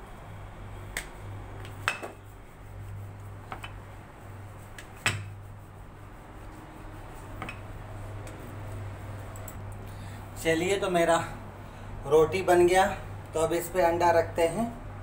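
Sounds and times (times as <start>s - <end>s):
steady low hum: 0.0s - 15.0s
rolling pin rolling dough: 1.6s - 9.2s.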